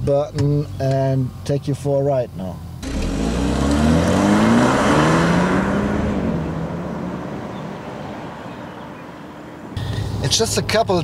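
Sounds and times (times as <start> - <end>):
car engine accelerating: 2.8 - 10.4.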